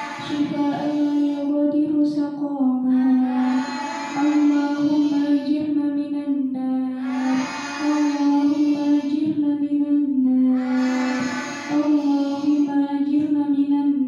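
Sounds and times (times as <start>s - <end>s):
girls chanting in unison: 0.0s - 1.5s, 3.2s - 5.6s, 7.0s - 9.2s, 10.6s - 12.7s.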